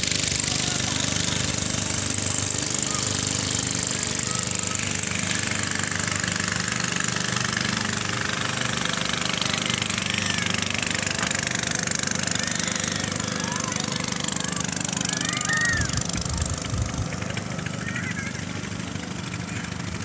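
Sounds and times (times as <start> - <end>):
small boat engine running: 0.0 - 20.0.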